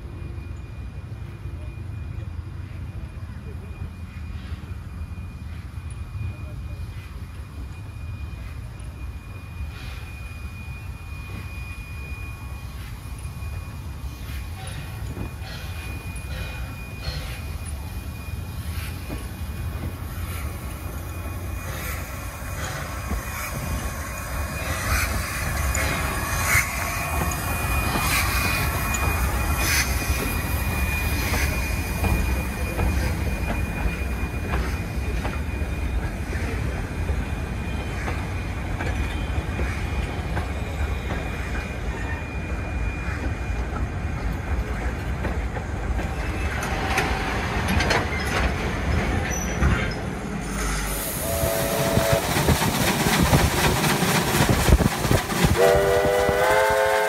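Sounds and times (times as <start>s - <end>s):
train wheels rumbling on rails: 0.0s - 57.0s
high squeal: 0.1s - 44.1s, 46.1s - 55.9s
steam whistle chord: 51.0s - 52.3s, 55.4s - 57.0s.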